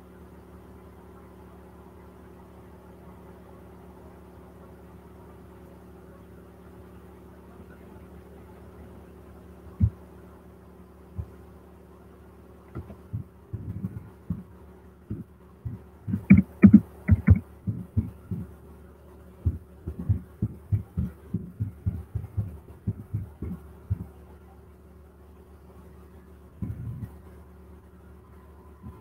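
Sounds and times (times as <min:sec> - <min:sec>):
steady electrical hum: 0:00.0 - 0:29.0
soft thumps on microphone: 0:15.1 - 0:18.4, 0:19.5 - 0:24.0.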